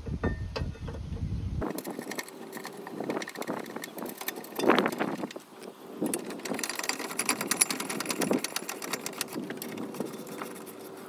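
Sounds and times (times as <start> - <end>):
metal knocks: 0.0 - 1.3
ratchet wrench clicking: 6.0 - 10.6.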